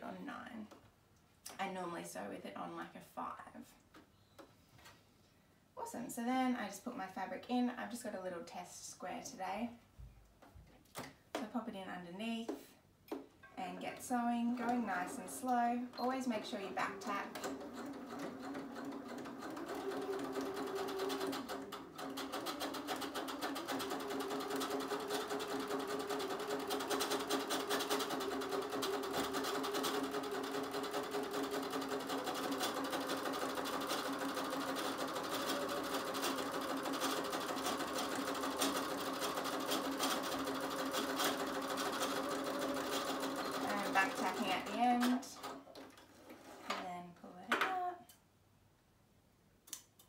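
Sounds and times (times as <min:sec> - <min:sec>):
electric sewing machine running: 0:16.5 - 0:45.2.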